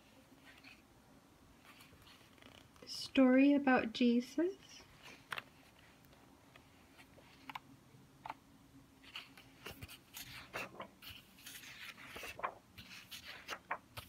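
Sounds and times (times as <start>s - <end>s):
paper pages rustling: 0.1s - 0.8s, 1.6s - 2.8s, 4.9s - 7.6s, 9.0s - 14.0s.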